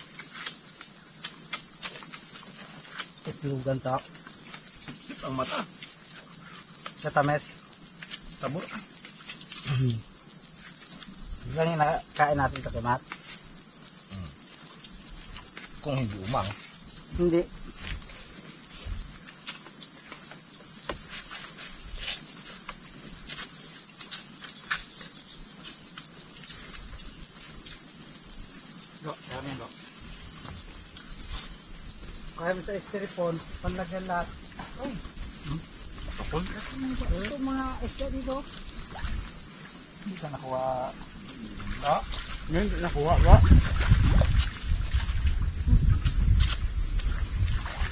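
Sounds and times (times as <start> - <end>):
insect chorus shrilling: 0.0 - 47.9
low voices talking: 32.4 - 38.6, 40.0 - 44.4.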